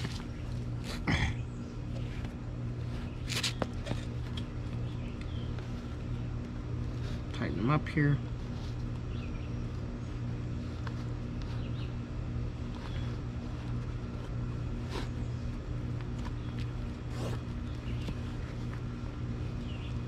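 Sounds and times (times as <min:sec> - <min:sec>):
shoelaces scraping: 0:00.0 - 0:01.0, 0:01.6 - 0:07.3, 0:08.3 - 0:20.0
low mechanical hum: 0:00.0 - 0:20.0.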